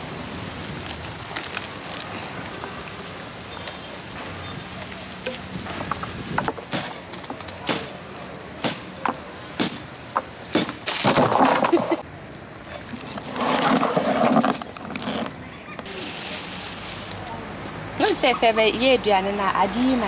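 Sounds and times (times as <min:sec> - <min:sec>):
noisy scraping bursts: 0:13.1 - 0:17.2.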